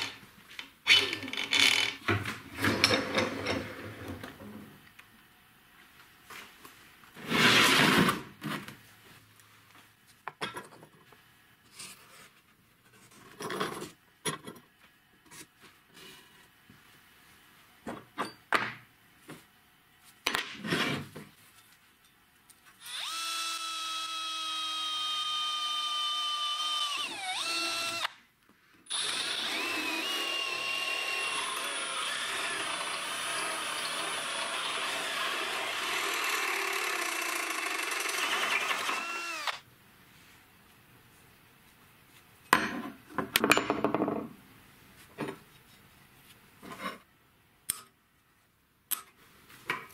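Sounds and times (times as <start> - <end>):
drill cutting steel: 22.8 - 28.1, 28.9 - 39.6.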